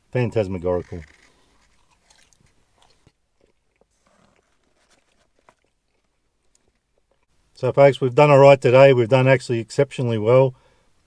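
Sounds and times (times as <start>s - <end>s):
crunches and mouth clicks: 0.6s - 7.3s
person chewing: 0.9s - 7.3s.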